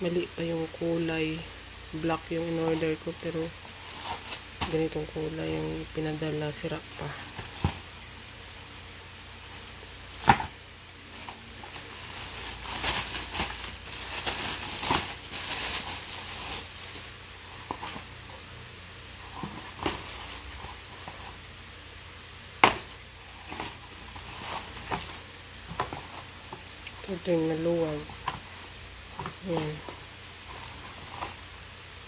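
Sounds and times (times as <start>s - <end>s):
plastic packaging crinkling: 2.3s - 5.1s, 9.5s - 18.2s, 19.2s - 21.4s, 22.7s - 27.1s.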